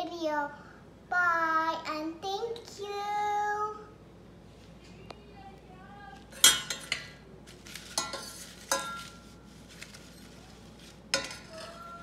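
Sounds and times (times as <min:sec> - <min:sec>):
ladle clinking against metal pot: 0:06.4 - 0:07.2, 0:08.0 - 0:09.2, 0:11.1 - 0:12.0
metal ladle stirring paper scraps: 0:06.4 - 0:12.0.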